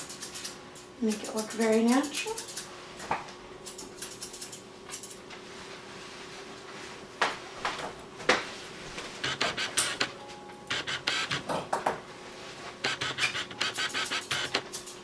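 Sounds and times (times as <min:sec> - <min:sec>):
scissors snipping hair: 0:00.0 - 0:02.7, 0:03.6 - 0:05.2, 0:13.0 - 0:15.0.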